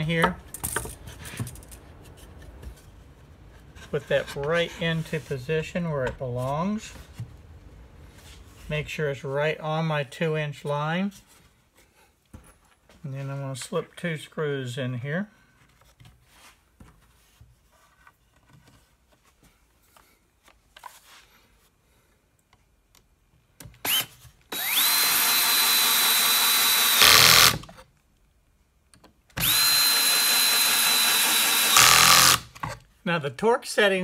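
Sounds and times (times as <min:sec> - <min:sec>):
cordless drill whining: 0:23.8 - 0:27.7, 0:29.4 - 0:32.6.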